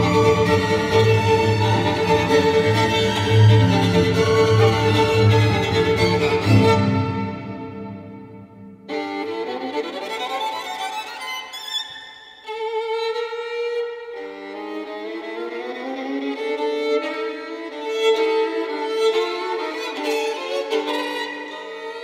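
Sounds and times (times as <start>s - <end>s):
string orchestra chords: 0.0s - 9.6s
solo violin with vibrato: 0.0s - 22.0s.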